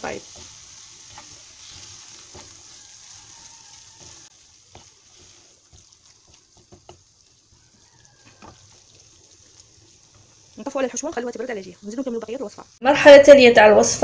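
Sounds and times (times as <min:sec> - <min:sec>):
wooden spoon scraping a pan: 0:00.0 - 0:12.8
food sizzling in a frying pan: 0:00.0 - 0:13.4.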